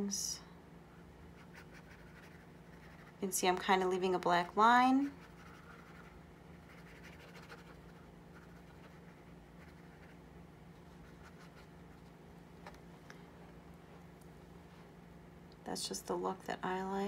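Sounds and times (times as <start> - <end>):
paintbrush scratching on canvas: 1.4 - 3.3, 5.1 - 10.2.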